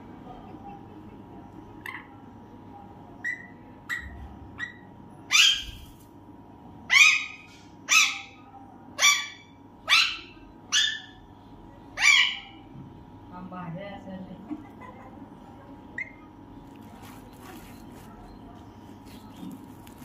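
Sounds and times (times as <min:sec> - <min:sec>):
parakeet squawking harshly: 0:04.6 - 0:05.9, 0:06.9 - 0:08.4, 0:09.0 - 0:11.2, 0:12.0 - 0:12.6.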